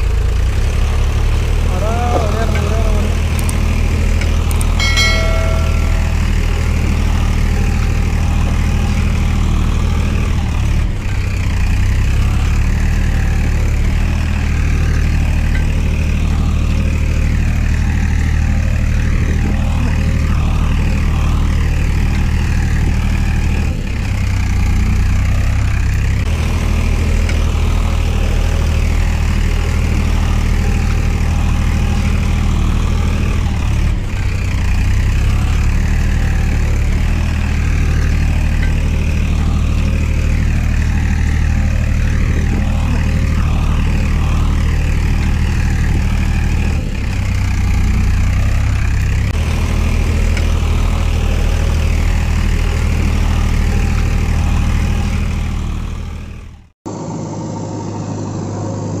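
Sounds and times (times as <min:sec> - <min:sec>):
tractor engine droning: 0:00.0 - 0:59.0
falling chime notes: 0:04.7 - 0:07.7.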